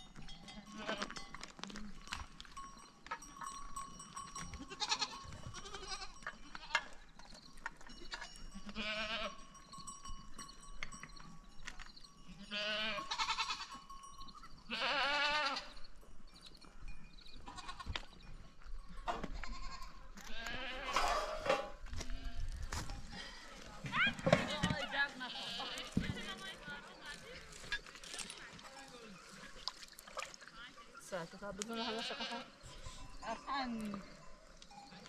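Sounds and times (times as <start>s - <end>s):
bell clinking: 0.0s - 6.4s, 7.8s - 14.7s
livestock bleating: 0.6s - 1.2s, 4.6s - 7.0s, 8.1s - 9.4s, 12.3s - 13.8s, 14.7s - 15.8s, 17.4s - 18.0s, 19.4s - 22.6s, 24.9s - 26.5s, 31.4s - 34.1s.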